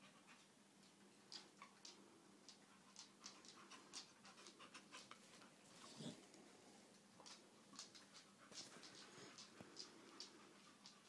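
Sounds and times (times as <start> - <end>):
dog panting quickly: 2.7 - 6.2.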